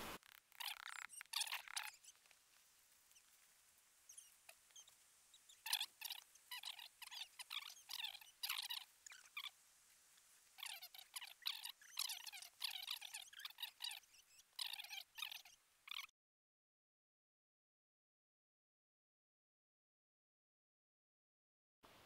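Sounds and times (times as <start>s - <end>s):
tent fabric rustling: 0.0s - 11.2s.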